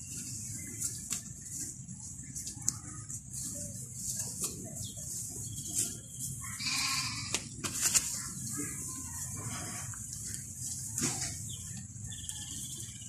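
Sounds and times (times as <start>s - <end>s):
hands working loose soil: 0.0s - 12.9s
animal bleating call: 6.6s - 7.4s.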